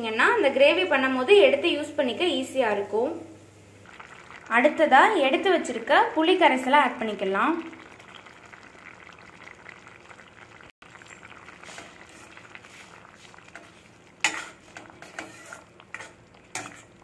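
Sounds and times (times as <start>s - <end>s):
gravy simmering in a pan: 3.7s - 5.8s, 6.9s - 17.0s.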